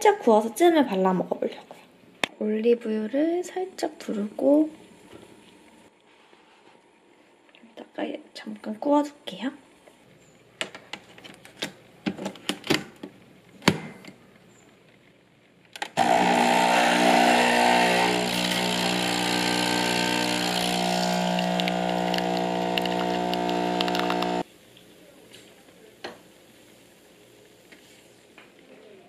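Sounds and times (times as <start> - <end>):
espresso pump humming and hissing: 16.0 - 24.5.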